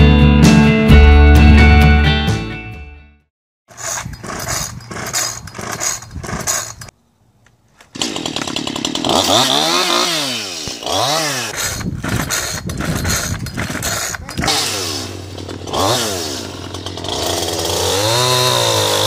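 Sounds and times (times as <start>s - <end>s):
chainsaw revving: 3.7s - 6.9s, 7.8s - 19.0s
chainsaw recoil starter pulls: 3.7s - 19.0s.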